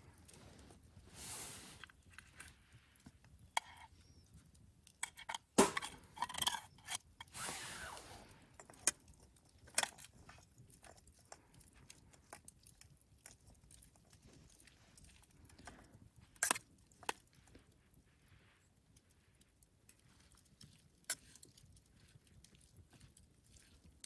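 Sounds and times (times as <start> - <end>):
wood fire crackling: 0.0 - 6.2
spork scraping metal pot: 3.5 - 4.2, 5.0 - 7.4.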